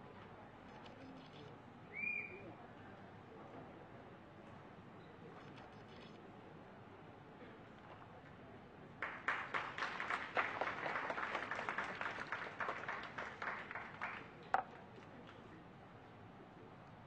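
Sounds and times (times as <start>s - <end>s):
audience applauding: 9.0s - 14.4s.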